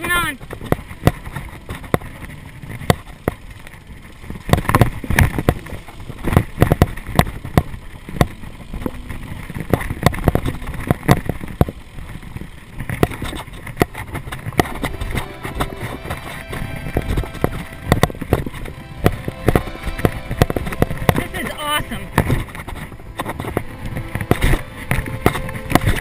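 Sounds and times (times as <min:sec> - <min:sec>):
bike knocking and clattering: 0:00.0 - 0:14.9.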